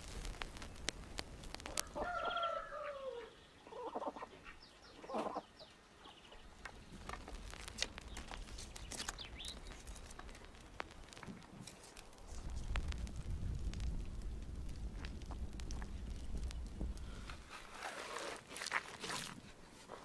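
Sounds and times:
wood fire crackling: 0.0 - 2.8, 6.4 - 20.0
chicken calling: 1.7 - 5.6.

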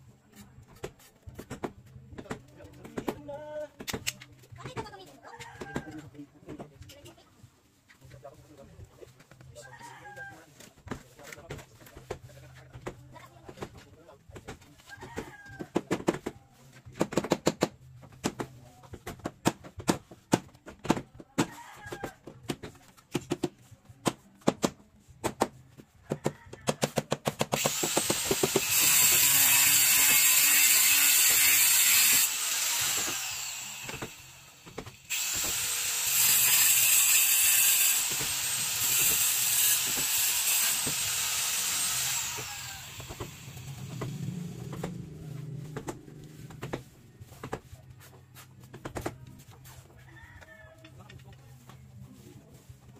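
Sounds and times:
small power tool running: 27.6 - 44.6.

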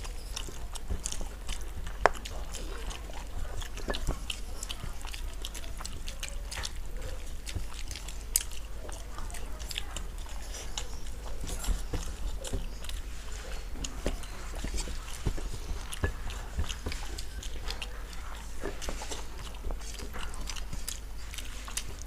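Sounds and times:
chewing and lip smacking: 0.0 - 22.0
fingers mixing rice on steel plates: 0.0 - 22.0
steady low hum: 0.0 - 22.0.

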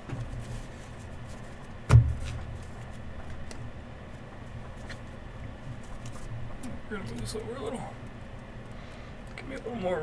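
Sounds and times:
sharp thump: 1.9 - 2.5.

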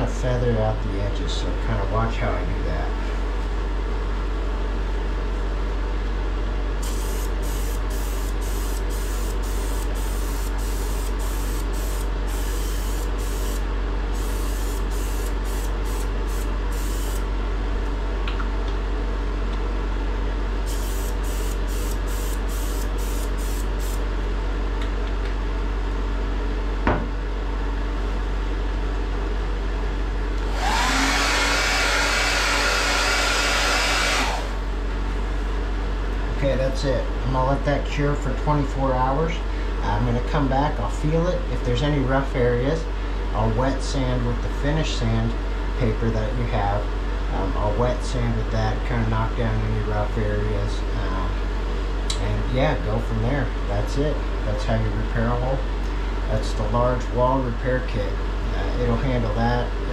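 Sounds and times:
hair dryer blowing: 6.8 - 13.6, 30.4 - 34.6
spray gun hissing: 6.8 - 13.6, 14.2 - 17.2, 20.7 - 24.0.

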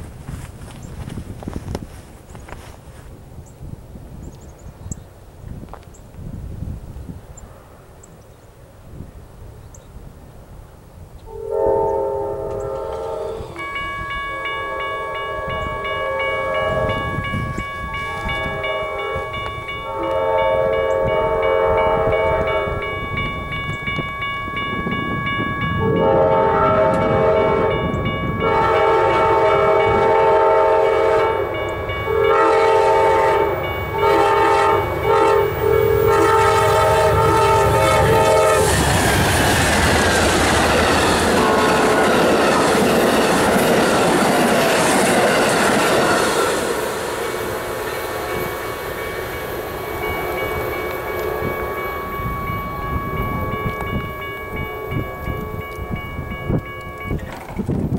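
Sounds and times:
locomotive air horn blasts: 11.3 - 23.2, 25.8 - 38.9, 40.6 - 42.6, 45.1 - 57.1
crossing bell ringing: 11.5 - 57.9
train wheels rushing on rails: 11.8 - 57.9.

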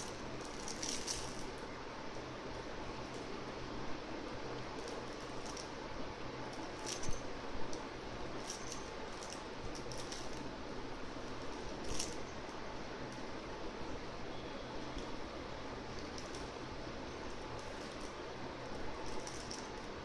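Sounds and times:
soft toy clicks and crinkles: 0.0 - 3.4, 4.5 - 5.8, 6.5 - 10.5, 11.3 - 13.3, 15.9 - 20.0
steady hiss: 0.0 - 20.0.

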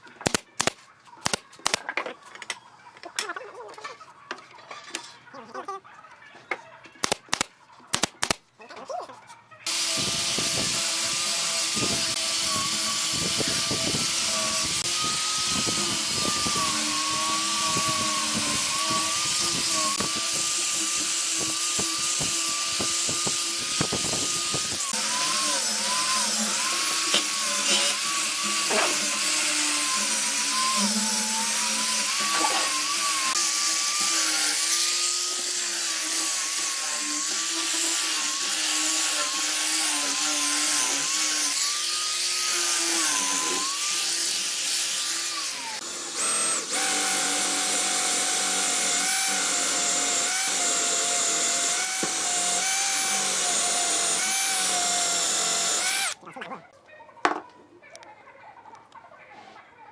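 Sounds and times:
angle grinder sanding wood: 9.7 - 56.2.

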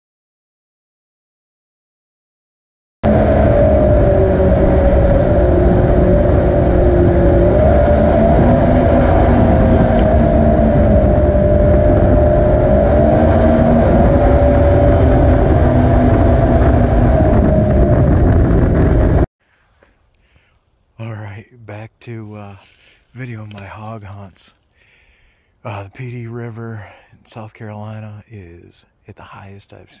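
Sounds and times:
jet boat engine drone: 3.0 - 19.3.

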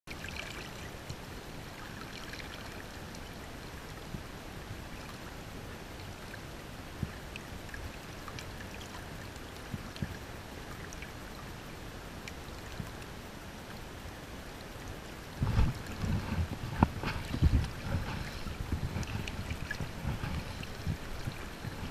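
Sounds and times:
faint ticks and drips: 0.1 - 21.9
river water flowing: 0.1 - 21.9
wind buffeting microphone: 15.3 - 21.9.

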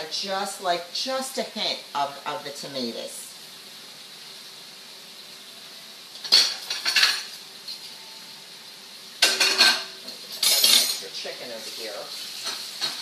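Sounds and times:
pans sizzling: 0.0 - 13.0
dishes and cutlery clattering: 6.2 - 7.3, 9.2 - 11.0.

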